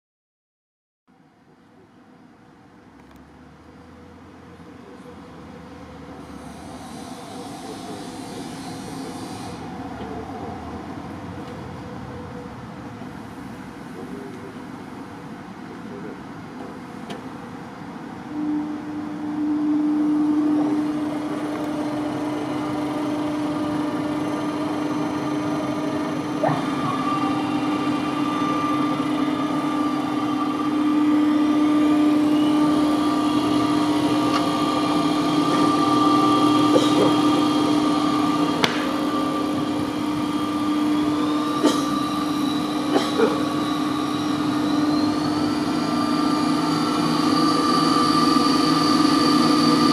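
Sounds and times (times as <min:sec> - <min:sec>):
high whine rising in pitch: 0:18.2 - 0:49.9
bowl cutter motor hum: 0:18.4 - 0:49.9.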